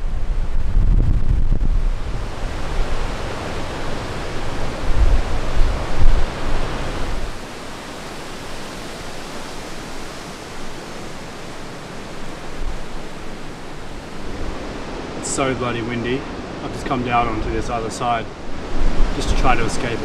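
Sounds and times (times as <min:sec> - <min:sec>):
rushing hiss of wind: 0:00.0 - 0:20.0
strong wind buffeting microphone: 0:00.0 - 0:20.0.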